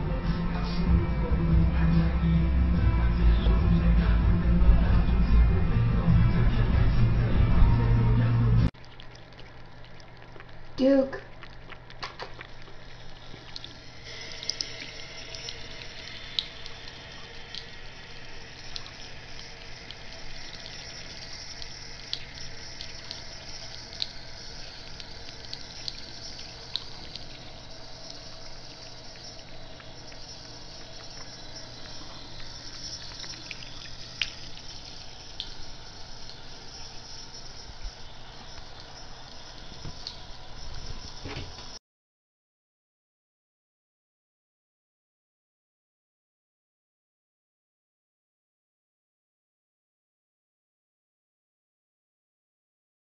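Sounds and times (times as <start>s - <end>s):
faucet water running into sink: 8.8s - 41.8s
water drips and splashes: 8.8s - 41.8s.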